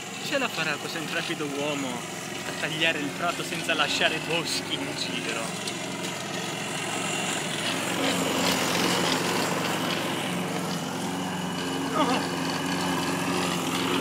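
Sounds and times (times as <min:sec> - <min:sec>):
petrol lawn mower running: 0:00.0 - 0:14.0.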